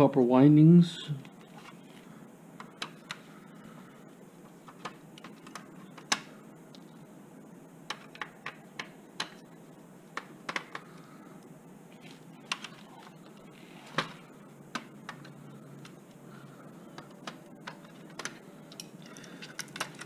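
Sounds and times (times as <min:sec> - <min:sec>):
plastic and metal parts clicking: 0:16.9 - 0:20.0.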